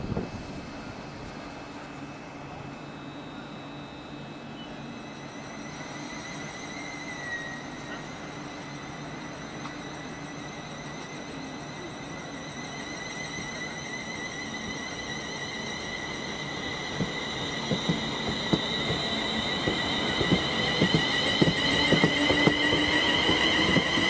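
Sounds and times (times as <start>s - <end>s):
train rumble with high whine: 0.0s - 24.0s.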